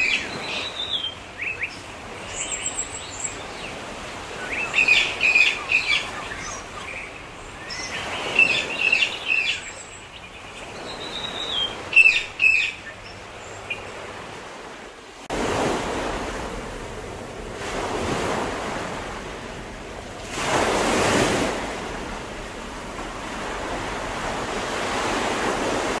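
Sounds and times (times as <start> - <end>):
small birds chirping: 0.0 - 14.2
ocean waves washing in: 0.0 - 26.0.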